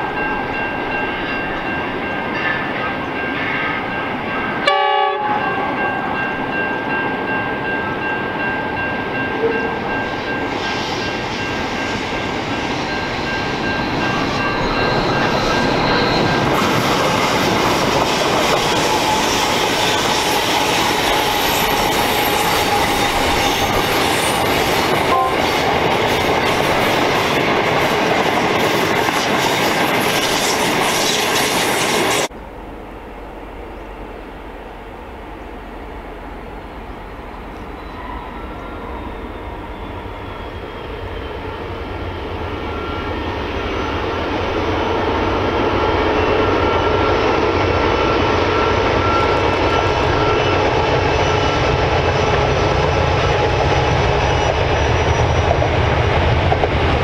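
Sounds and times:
diesel locomotives passing: 0.0 - 57.0.

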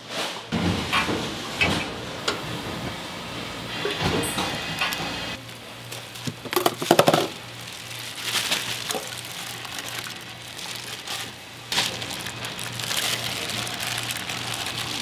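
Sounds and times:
plastic bag crinkling: 5.8 - 15.0.

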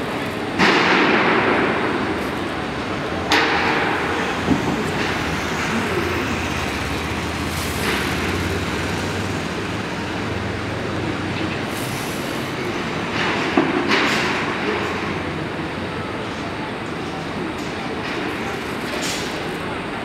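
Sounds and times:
broad background noise: 0.0 - 20.0
low machine drone: 0.0 - 20.0
sharp knocks and clanks: 0.5 - 10.7, 12.8 - 15.2.

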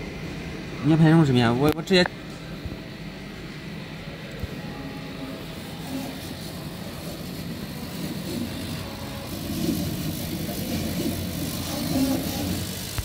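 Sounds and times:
fan and extraction noise: 0.0 - 13.0
motors whining: 4.2 - 13.0.

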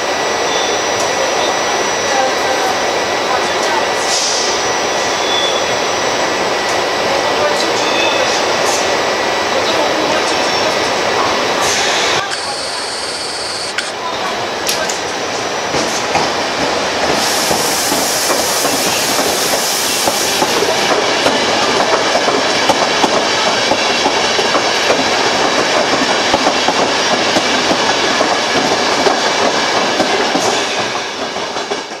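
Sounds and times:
train wheels clicking over rail joints: 15.7 - 32.0
high hiss: 17.2 - 20.7.

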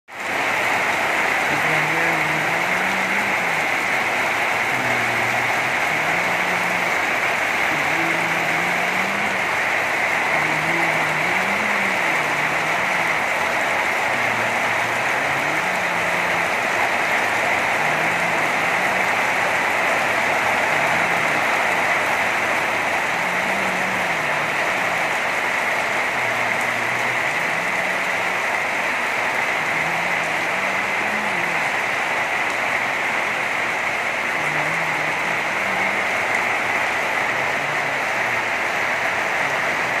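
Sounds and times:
heavy rain falling: 0.1 - 40.0.

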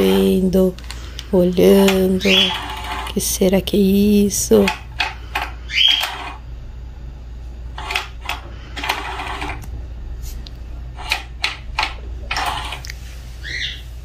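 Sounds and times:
toy motor humming: 1.7 - 3.4, 5.4 - 6.4, 7.8 - 9.6, 12.3 - 12.9.

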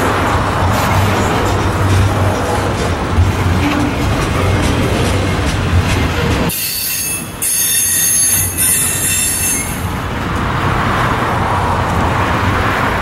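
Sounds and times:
train rolling noise: 0.0 - 13.0
train wheels squealing: 6.5 - 9.9.

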